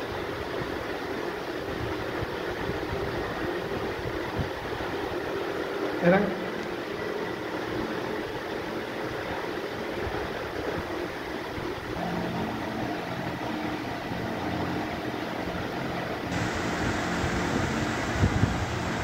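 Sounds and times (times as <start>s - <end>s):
steady mechanical hum: 0.0s - 19.0s
bright hiss: 16.3s - 19.0s.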